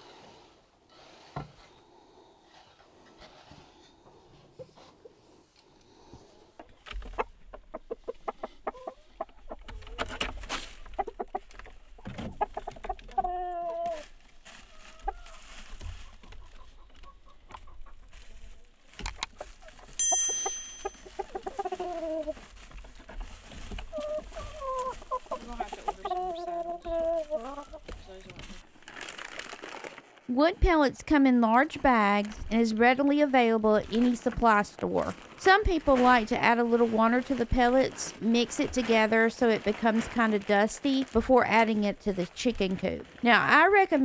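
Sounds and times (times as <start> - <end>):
chickens clucking: 6.6 - 28.2
chickens squawking: 7.0 - 10.1, 10.7 - 18.5, 21.0 - 23.2, 23.8 - 28.0.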